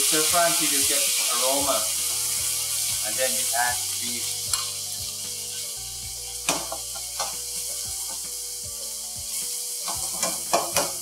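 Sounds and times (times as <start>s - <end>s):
background music with sustained tones: 0.0s - 11.0s
meat sizzling in hot oil: 0.0s - 11.0s
metal ladle scraping a wok: 4.5s - 5.8s.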